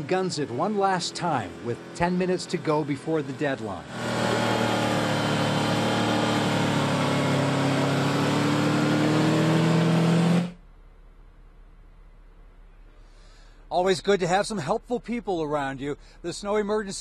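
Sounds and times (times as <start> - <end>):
car engine revving hard: 0.0 - 10.6.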